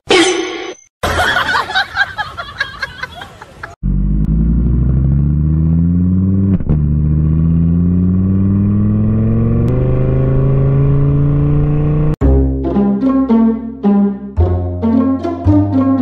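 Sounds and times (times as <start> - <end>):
vehicle engine accelerating: 3.8 - 12.2.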